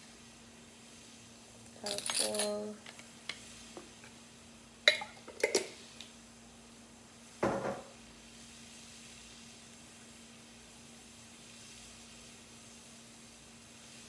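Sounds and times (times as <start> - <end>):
faint steady hum: 0.0 - 14.0
jars knocking and clinking: 1.9 - 3.0, 4.9 - 5.7.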